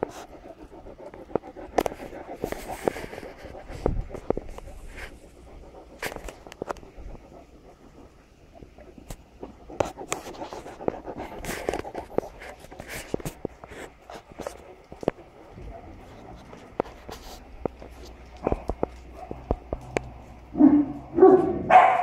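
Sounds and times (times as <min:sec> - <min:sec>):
dog panting: 0:00.0 - 0:20.5
sharp clicks and scuffs: 0:09.0 - 0:20.5.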